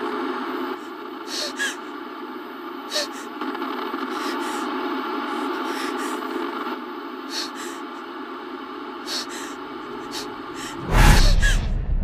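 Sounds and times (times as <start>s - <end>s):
woman's frightened breaths: 0.7s - 2.1s, 2.8s - 3.4s, 4.0s - 11.6s.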